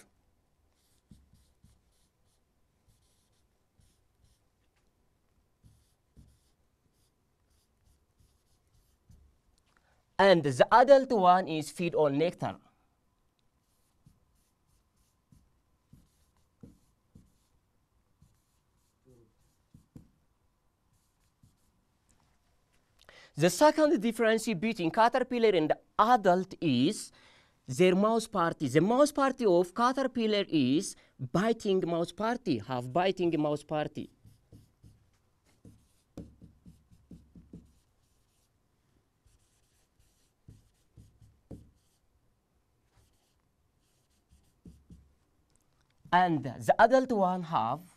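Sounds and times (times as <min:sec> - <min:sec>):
pen writing on a board: 0:00.7 - 0:04.5, 0:05.6 - 0:09.4, 0:13.6 - 0:17.6, 0:18.2 - 0:20.2, 0:20.9 - 0:21.7, 0:34.0 - 0:38.5, 0:39.2 - 0:42.0, 0:43.0 - 0:45.1.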